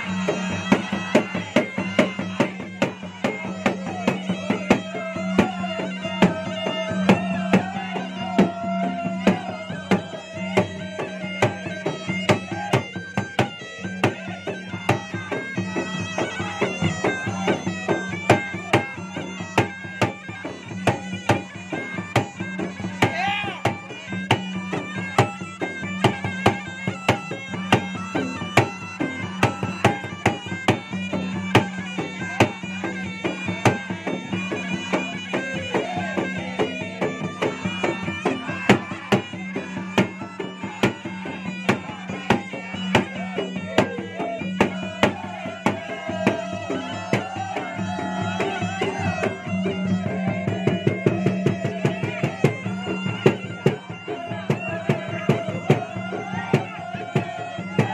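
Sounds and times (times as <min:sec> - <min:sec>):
barrel drums beaten fast: 0:00.0 - 0:18.9
nasal double-reed pipe melody: 0:00.0 - 0:57.9.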